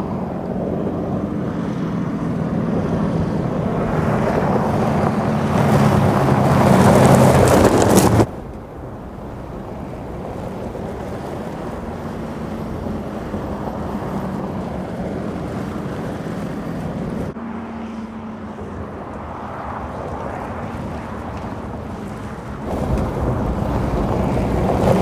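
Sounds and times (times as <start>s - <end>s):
wind noise: 0.0s - 17.4s, 18.4s - 25.0s
diesel engine running: 0.0s - 25.0s
tyre noise on dirt: 2.8s - 17.4s.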